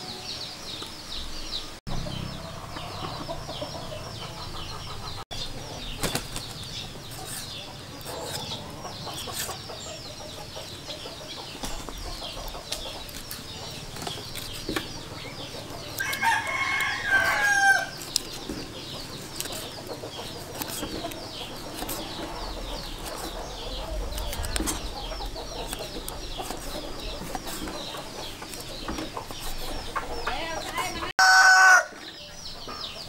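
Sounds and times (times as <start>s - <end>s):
high chirping: 0.0s - 31.2s
rooster crowing: 16.0s - 18.0s, 31.0s - 32.1s.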